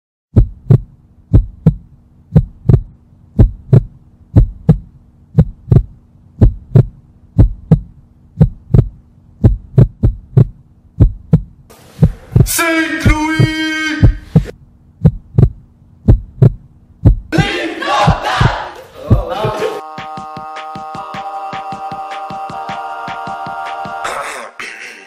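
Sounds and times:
heartbeat thumps: 0.3s - 23.6s
faint steady hum: 0.4s - 19.3s.

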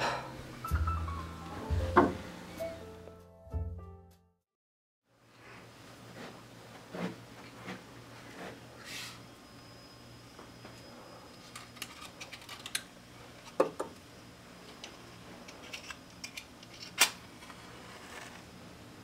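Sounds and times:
faint room hum: 5.1s - 19.0s.

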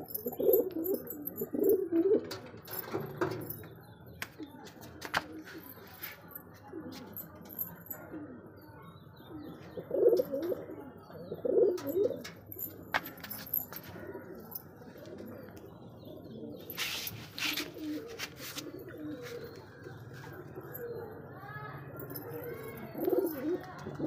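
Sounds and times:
pigeons cooing: 0.0s - 3.7s, 9.2s - 12.8s, 13.5s - 21.3s, 22.0s - 24.0s.

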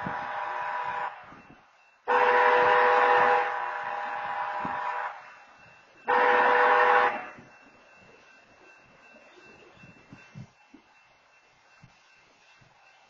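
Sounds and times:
locomotive air horn blasts: 0.0s - 5.3s, 6.0s - 7.4s.

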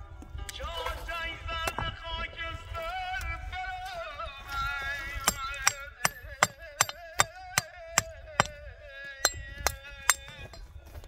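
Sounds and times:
hammer striking stone: 5.2s - 8.6s, 9.2s - 10.7s.

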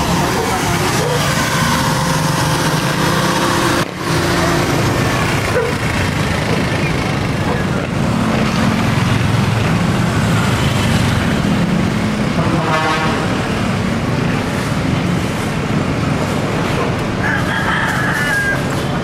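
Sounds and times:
traffic engines rumbling: 0.0s - 19.0s
vehicle horn: 12.4s - 13.5s.

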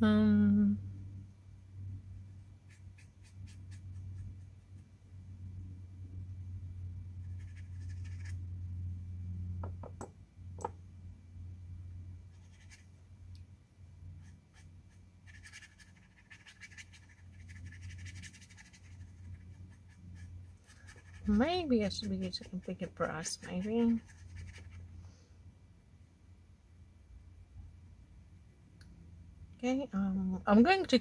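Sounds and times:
steady low hum: 0.0s - 31.0s
brush scrubbing on rough paper: 7.2s - 8.4s, 14.2s - 24.9s.

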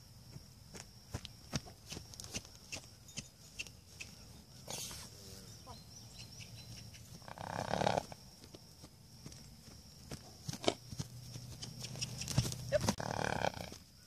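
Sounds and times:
hooves on dry ground: 0.2s - 5.1s, 6.3s - 14.0s
horse snorting: 7.2s - 8.2s, 12.7s - 13.7s.

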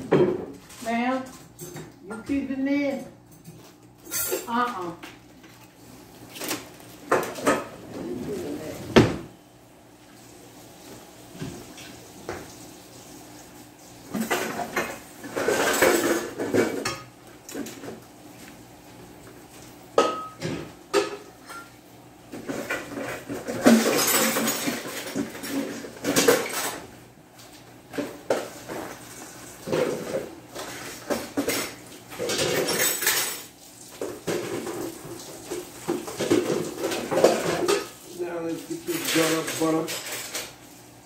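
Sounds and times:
dishes clattering at a sink: 0.0s - 0.7s, 6.5s - 9.3s, 14.1s - 18.0s, 19.9s - 26.9s, 27.9s - 40.6s.

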